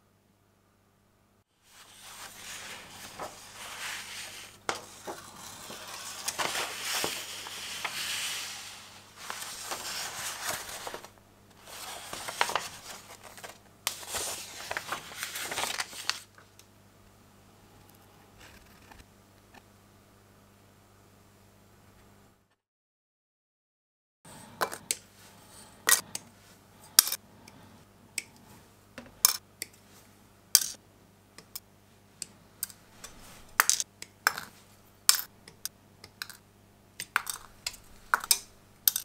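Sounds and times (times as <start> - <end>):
paper booklet leafed through: 1.7 - 16.6
plastic parts crinkling and rustling: 1.8 - 16.5.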